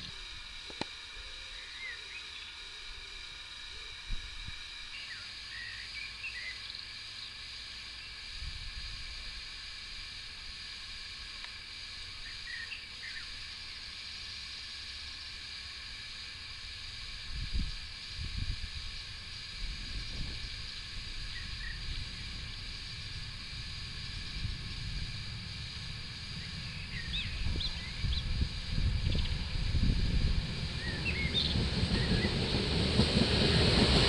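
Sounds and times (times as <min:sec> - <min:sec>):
steady hiss: 0:00.0 - 0:34.0
wind buffeting microphone: 0:17.3 - 0:34.0.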